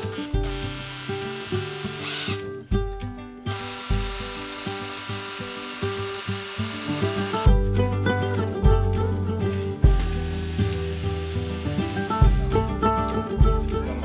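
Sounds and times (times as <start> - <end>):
power drill drilling into wood: 0.0 - 2.5, 3.5 - 7.5, 9.5 - 12.5
background music: 0.0 - 14.0.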